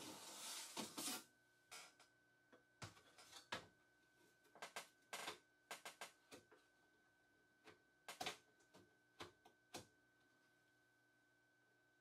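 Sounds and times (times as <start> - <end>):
metal tray sliding with a scrape: 0.0 - 1.2.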